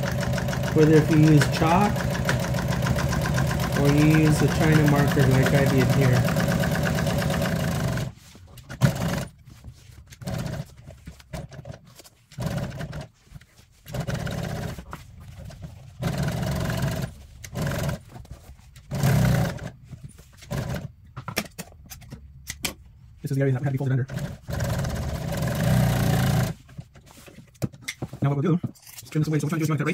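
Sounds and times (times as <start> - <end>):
industrial sewing machine stitching: 0.0 - 9.3, 10.2 - 10.7, 12.4 - 13.1, 13.9 - 14.9, 16.0 - 18.0, 18.9 - 19.7, 24.1 - 26.6.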